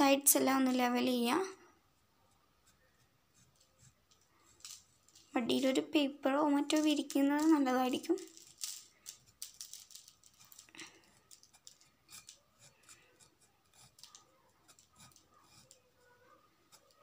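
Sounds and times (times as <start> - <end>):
paintbrush scratchy strokes: 1.8 - 4.6, 11.1 - 17.0.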